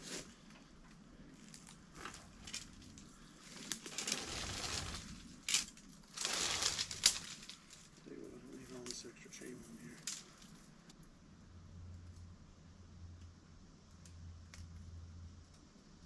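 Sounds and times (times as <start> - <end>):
crunching rustling handling noise: 1.3 - 10.8.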